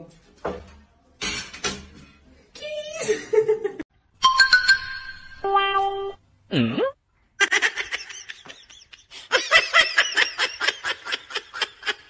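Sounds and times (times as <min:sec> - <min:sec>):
high-pitched giggling laughter: 0:07.4 - 0:12.0.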